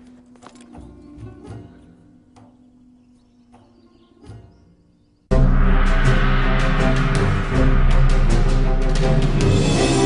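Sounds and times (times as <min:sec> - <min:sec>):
percussion strikes: 0:05.3 - 0:10.0
theme music with deep bass: 0:05.3 - 0:10.0.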